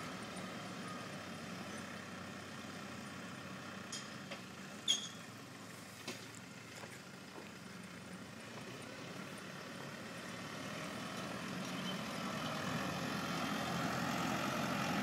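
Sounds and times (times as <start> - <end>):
tractor engine droning: 0.0 - 15.0.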